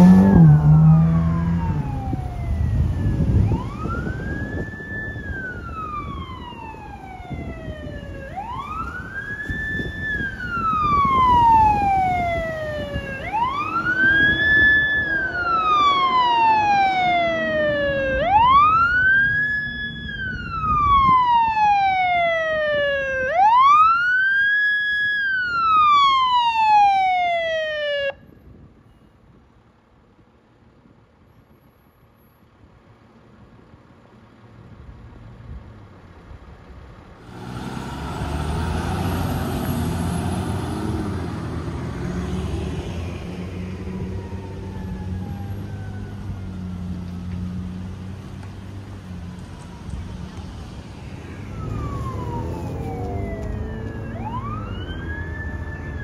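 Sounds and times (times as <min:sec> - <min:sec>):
loud engine rumble: 0:00.0 - 0:06.2, 0:35.8 - 0:55.8
electronic siren wailing: 0:00.0 - 0:28.2, 0:37.3 - 0:47.0, 0:49.2 - 0:56.0.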